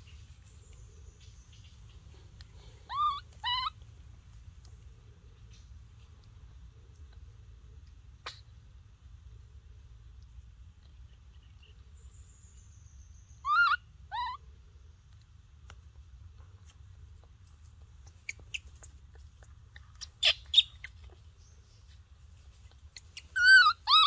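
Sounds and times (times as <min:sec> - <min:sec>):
faint background hum: 0:00.0 - 0:24.0
high-pitched animal calls: 0:02.8 - 0:03.8, 0:13.4 - 0:14.4, 0:23.0 - 0:24.0.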